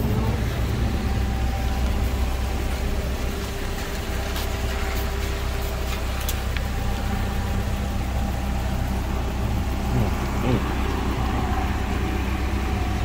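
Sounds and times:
low motor hum: 0:00.0 - 0:13.0
light ticks: 0:03.3 - 0:07.1.

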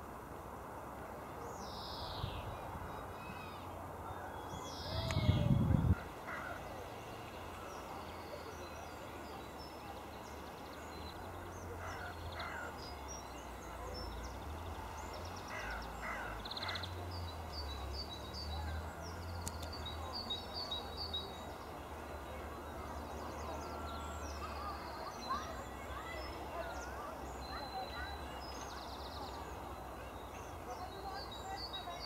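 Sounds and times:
birds chirping: 0:01.3 - 0:32.0.

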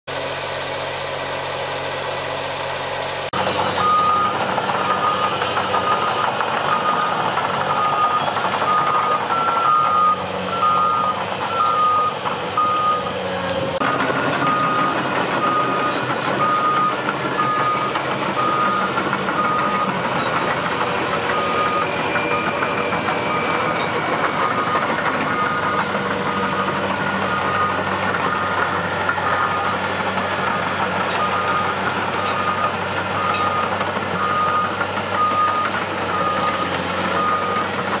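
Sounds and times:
diesel engine noise: 0:00.1 - 0:38.0
backup alarm beeping: 0:03.8 - 0:13.1.

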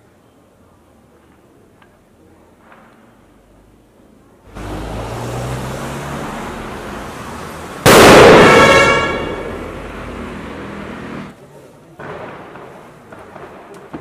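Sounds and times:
firecracker bang: 0:07.8 - 0:09.8, 0:12.0 - 0:14.0.

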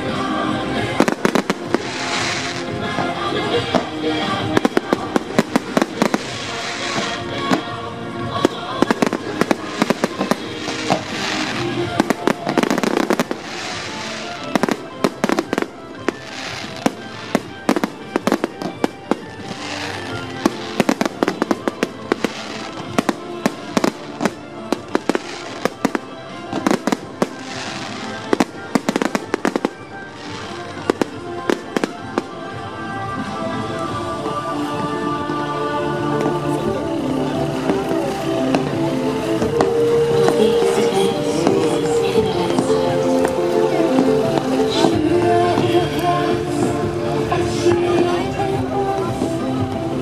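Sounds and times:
fireworks bangs and crackles: 0:00.0 - 0:35.4, 0:36.0 - 0:50.0
music playing: 0:00.0 - 0:50.0.

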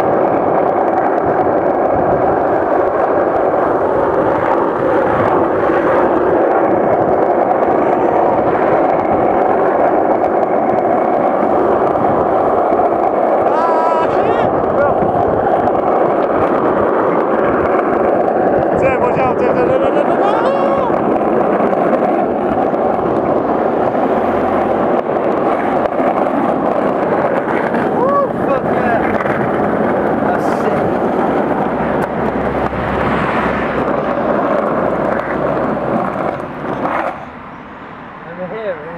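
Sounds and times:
skateboard wheels rolling on asphalt: 0:00.0 - 0:38.9.

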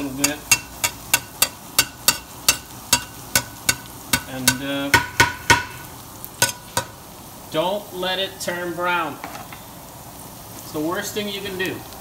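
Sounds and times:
oil sizzling: 0:00.0 - 0:12.0
metal spatula scraping skillet: 0:05.5 - 0:07.0.

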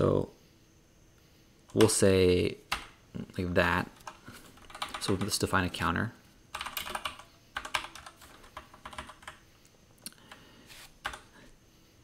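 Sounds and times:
computer keyboard typing: 0:02.7 - 0:03.0, 0:04.0 - 0:05.5, 0:06.5 - 0:09.4, 0:11.0 - 0:11.3.

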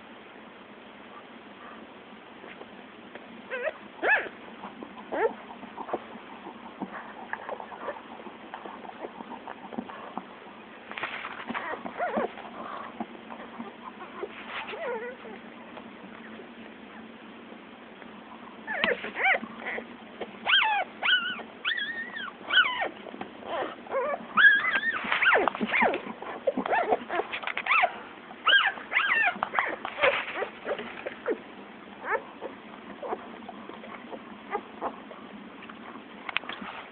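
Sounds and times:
puppies squeaking and whimpering: 0:03.5 - 0:04.4, 0:05.1 - 0:06.1, 0:11.4 - 0:15.4, 0:18.7 - 0:31.4, 0:32.0 - 0:33.3.

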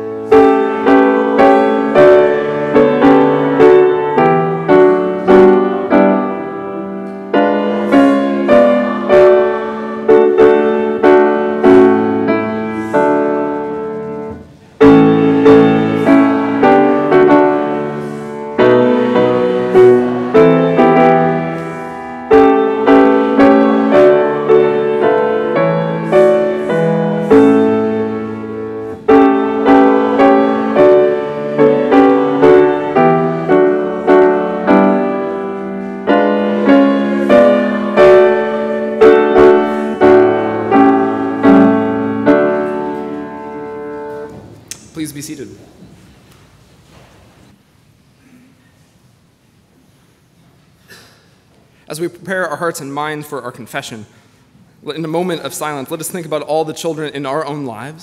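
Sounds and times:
piano playing chords: 0:00.0 - 0:45.8.

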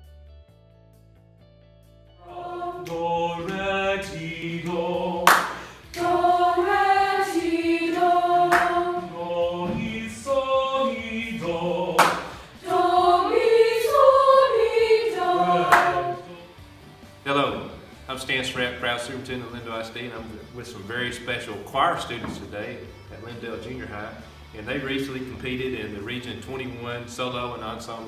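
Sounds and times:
choir singing: 0:02.2 - 0:16.7.

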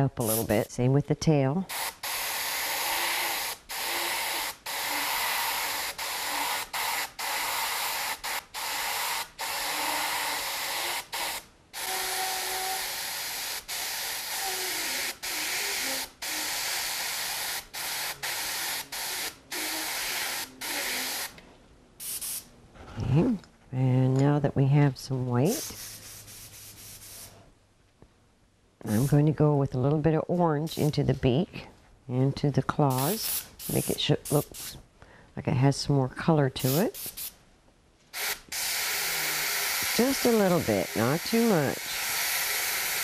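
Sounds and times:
airbrush spraying hiss: 0:00.2 - 0:00.7, 0:01.7 - 0:21.4, 0:22.0 - 0:22.5, 0:25.5 - 0:27.4, 0:28.9 - 0:29.2, 0:32.9 - 0:34.8, 0:36.6 - 0:37.4, 0:38.1 - 0:43.0.

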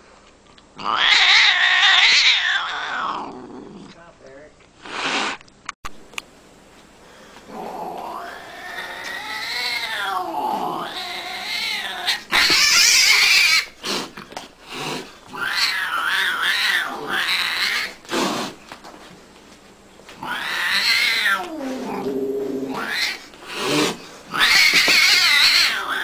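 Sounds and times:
angry cat yowling: 0:00.8 - 0:03.4, 0:07.5 - 0:13.7, 0:15.3 - 0:18.0, 0:20.2 - 0:26.0.

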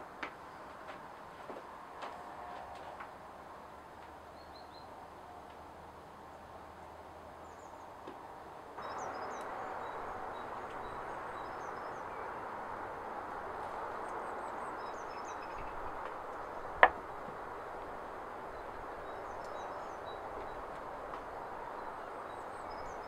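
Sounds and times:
steady outdoor hiss: 0:00.0 - 0:23.0
small birds chirping: 0:08.8 - 0:23.0
steel rod knocking on wood: 0:16.8 - 0:17.0.

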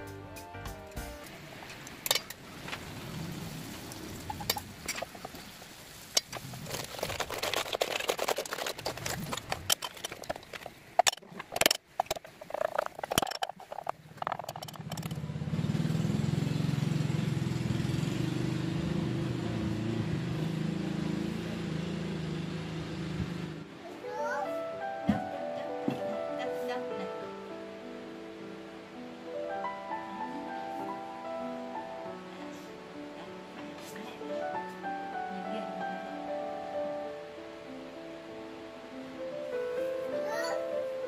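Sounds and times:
low motor hum: 0:13.8 - 0:23.7.

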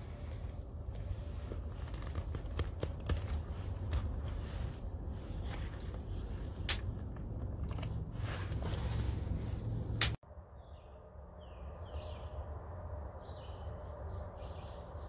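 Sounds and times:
clothing and leather rustling: 0:00.0 - 0:10.1
low rumble: 0:03.5 - 0:15.0.

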